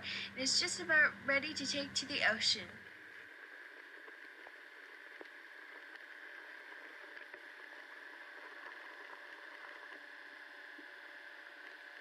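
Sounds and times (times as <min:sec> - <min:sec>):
faint underwater hiss: 0:00.0 - 0:01.8.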